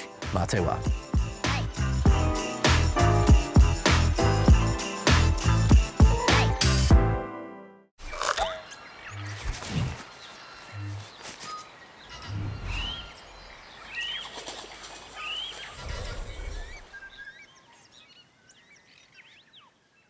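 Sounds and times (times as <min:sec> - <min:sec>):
bird-like chirps: 0:08.0 - 0:20.0.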